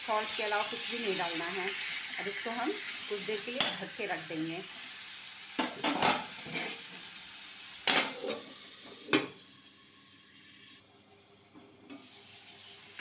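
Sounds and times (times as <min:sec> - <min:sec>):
vegetables sizzling in pan: 0:00.0 - 0:10.8, 0:11.4 - 0:13.0
metal clanks on pan: 0:03.6 - 0:03.8, 0:05.6 - 0:06.3.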